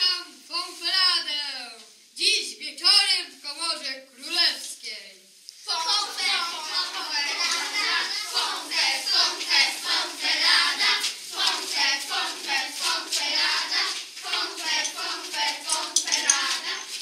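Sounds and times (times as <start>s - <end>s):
children singing: 5.7s - 17.0s
children clapping in rhythm: 6.7s - 17.0s.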